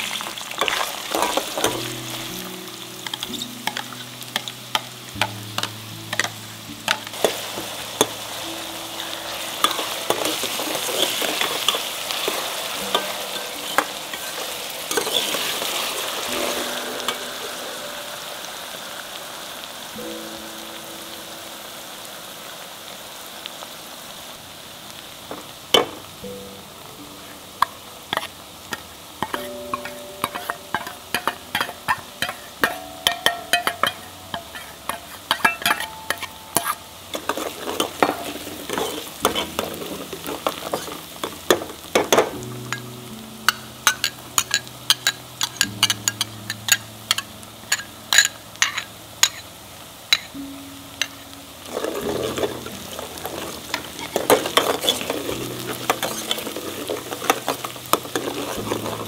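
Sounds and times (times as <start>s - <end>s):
food sizzling in oil: 0.0s - 59.0s
spoon scraping pot: 33.6s - 41.4s, 51.7s - 59.0s.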